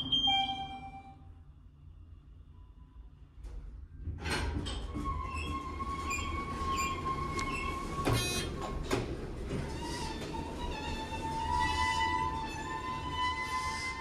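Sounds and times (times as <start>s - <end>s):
subway train rumble: 0.0s - 14.0s
elevator doors sliding open: 4.1s - 14.0s
high wheel squeal: 10.8s - 14.0s.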